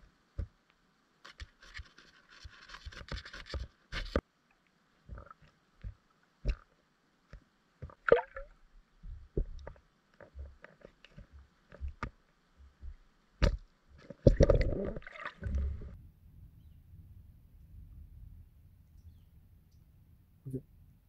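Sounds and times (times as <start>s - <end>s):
faint steady hiss: 0.0s - 21.0s
underwater clicks and knocks: 5.1s - 6.7s, 7.3s - 16.0s.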